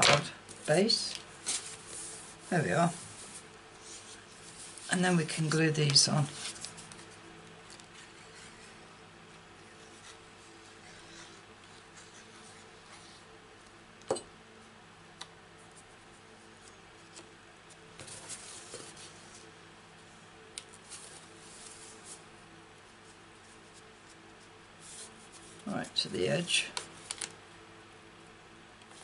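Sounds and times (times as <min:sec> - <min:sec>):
paper rustling: 0:00.0 - 0:08.7, 0:20.7 - 0:22.3, 0:26.8 - 0:27.4
low steady hum: 0:00.0 - 0:29.0.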